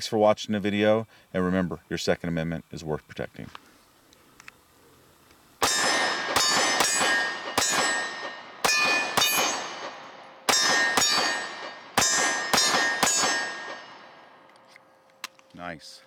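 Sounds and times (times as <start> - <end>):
pistol shots: 5.6 - 14.4
steel targets clanging: 5.6 - 14.4.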